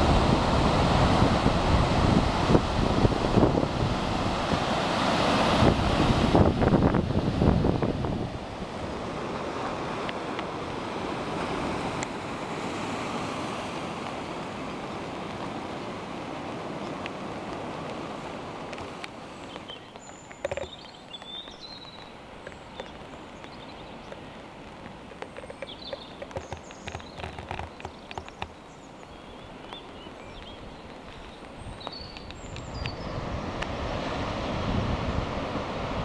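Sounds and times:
surf: 0.0s - 36.0s
wind: 0.0s - 36.0s
small clicks: 18.7s - 28.6s.

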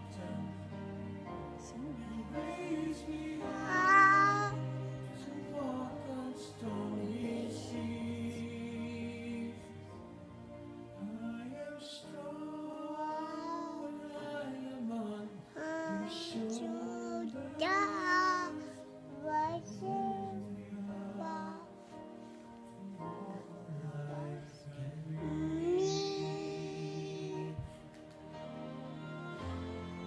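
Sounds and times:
baby vocalizing sing-song: 3.5s - 4.6s, 13.0s - 14.0s, 15.6s - 21.7s, 25.5s - 27.7s.

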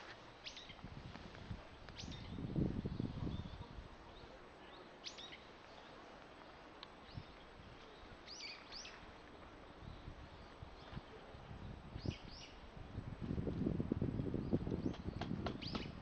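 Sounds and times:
faint outdoor background noise: 0.0s - 16.0s
birds chirping: 1.6s - 12.7s, 14.3s - 16.0s.

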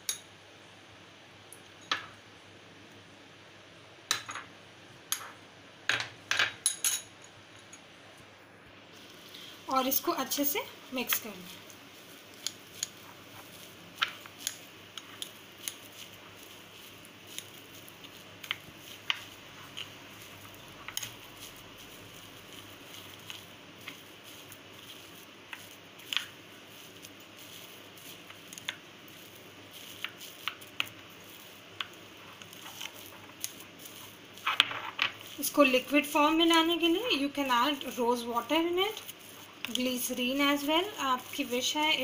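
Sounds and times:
faint steady hiss: 0.0s - 42.0s
spoon stirring thick paste: 10.2s - 42.0s.

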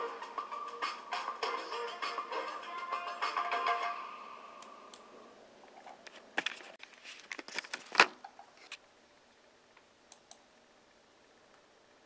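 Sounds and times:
background music: 0.0s - 4.9s.

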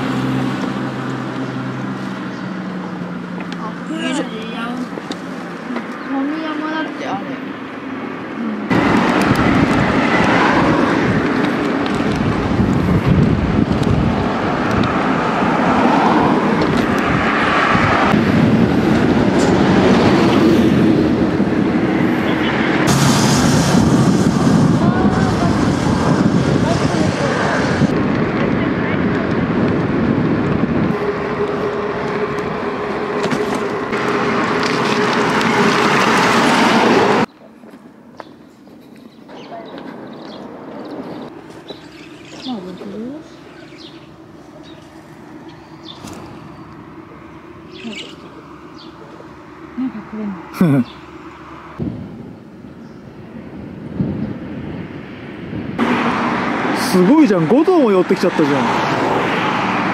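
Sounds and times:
bike tyre rolling noise: 8.7s - 37.3s, 39.8s - 49.5s
wind rush on microphone: 8.7s - 37.3s, 51.8s - 57.7s.

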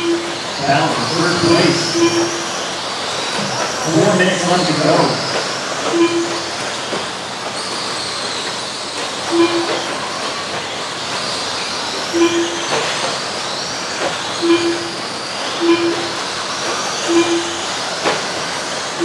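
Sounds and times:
short electronic beep: 0.0s - 2.6s, 3.4s - 6.6s, 9.3s - 10.1s, 12.1s - 13.1s, 14.4s - 16.3s, 17.0s - 17.7s
rc trucks motors whining: 0.0s - 19.0s.

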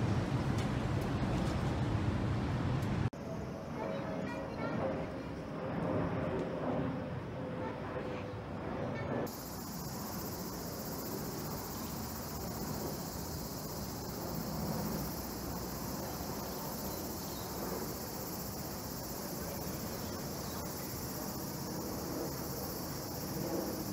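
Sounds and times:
jet airliner rumble overhead: 0.0s - 23.9s
insects chirping: 9.3s - 23.9s.

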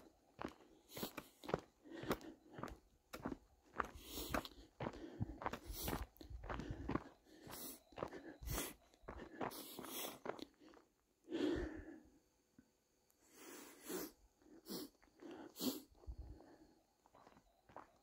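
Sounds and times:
footsteps on dirt and rock trail: 0.0s - 10.9s, 17.0s - 18.0s
person breathing: 0.5s - 12.3s, 13.2s - 16.8s.

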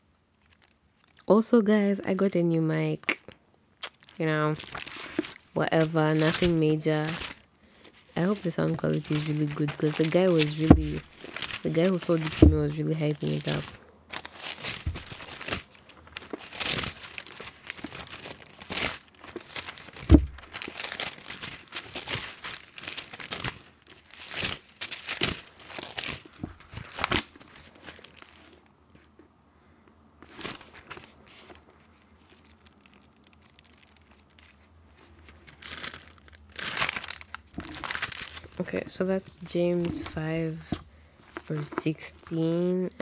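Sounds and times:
pages flipped by hand: 3.9s - 28.6s, 30.2s - 38.6s
sharp thump: 20.1s - 20.4s.

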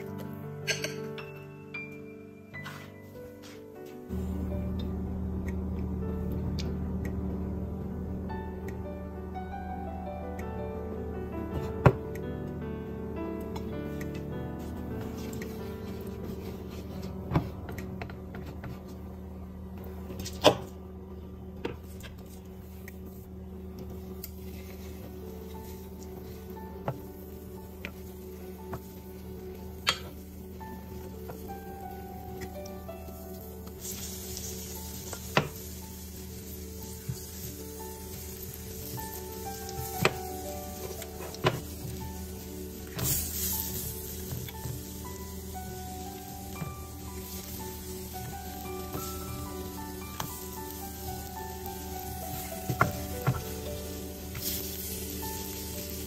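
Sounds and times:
steady low hum: 2.9s - 56.0s
pancakes sizzling in oil: 33.1s - 56.0s.

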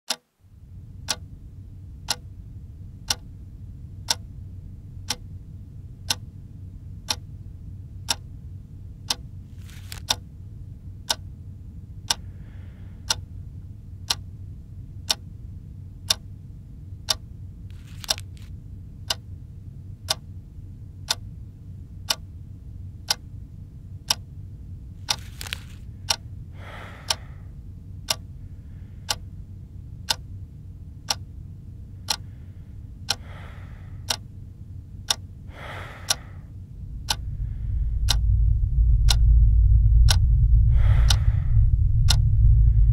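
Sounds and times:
wall clock ticking: 0.1s - 0.4s, 1.0s - 1.3s, 2.1s - 2.3s, 3.1s - 3.3s, 4.1s - 4.3s, 6.1s - 6.3s, 7.1s - 7.3s, 8.1s - 8.3s, 9.1s - 9.3s, 9.9s - 10.3s, 11.1s - 11.3s, 12.1s - 12.3s, 13.0s - 13.3s, 14.0s - 14.3s, 15.1s - 15.3s, 16.1s - 16.3s, 17.8s - 18.3s, 20.1s - 20.3s, 21.1s - 21.3s, 23.1s - 23.3s, 24.1s - 24.3s, 25.1s - 25.3s, 27.1s - 27.3s, 28.0s - 28.3s, 29.1s - 29.3s, 30.0s - 30.3s, 31.1s - 31.3s, 32.0s - 32.4s, 33.0s - 34.3s, 35.1s - 38.4s
low steady hum: 0.1s - 42.9s
soft rustling: 9.5s - 10.1s, 17.7s - 18.6s, 25.1s - 25.9s.

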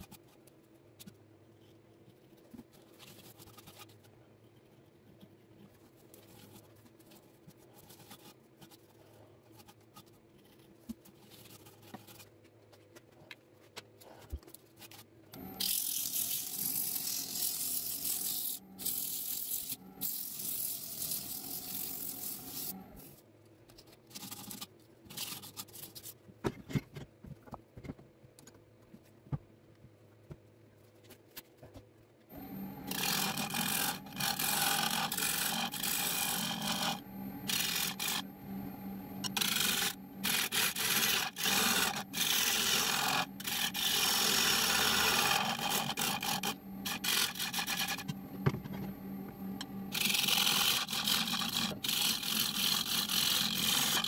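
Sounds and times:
lathe low hum: 15.3s - 23.1s, 32.3s - 54.0s
turning tool cutting wood: 15.4s - 23.1s, 32.3s - 54.0s.

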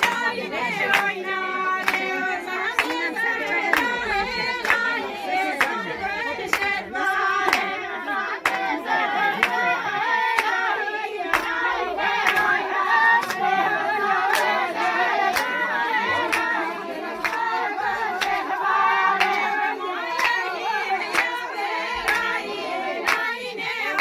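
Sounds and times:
sharp hand claps: 0.0s - 1.2s, 1.8s - 2.2s, 2.8s - 4.0s, 4.6s - 4.9s, 7.4s - 7.8s, 10.3s - 10.6s, 11.3s - 13.5s, 14.3s - 14.6s, 15.3s - 15.6s, 16.2s - 16.6s, 17.2s - 17.4s, 19.2s - 19.5s, 20.1s - 21.4s, 22.1s - 24.0s
people singing: 0.0s - 24.0s.

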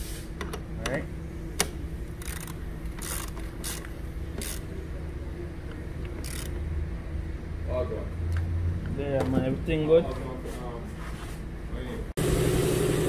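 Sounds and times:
steady low hum: 0.0s - 12.1s
ratchet clicking: 2.2s - 4.7s, 6.1s - 6.6s.

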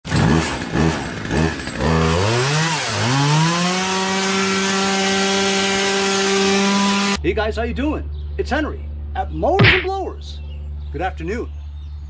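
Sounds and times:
chainsaw engine running: 0.1s - 7.2s.

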